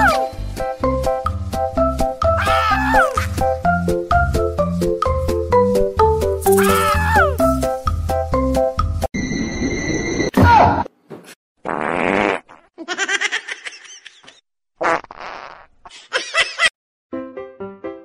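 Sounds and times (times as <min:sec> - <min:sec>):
comic fart sound effects: 0:11.6 - 0:12.8, 0:14.8 - 0:15.9.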